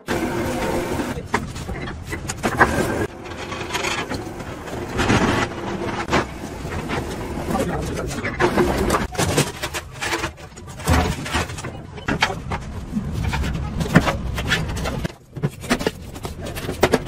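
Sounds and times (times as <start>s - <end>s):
plate bending machine running: 0.0s - 9.2s
steel sheet scraping and grinding: 0.0s - 17.0s.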